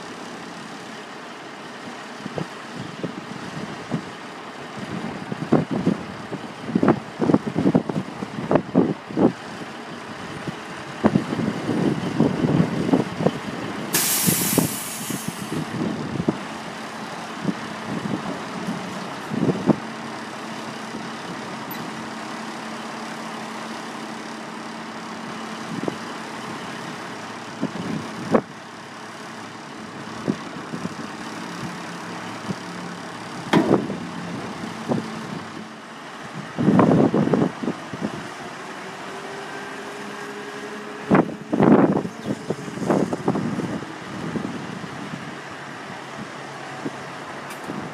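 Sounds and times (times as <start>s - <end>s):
truck engine idling: 0.0s - 39.1s
air release hiss: 13.9s - 15.6s.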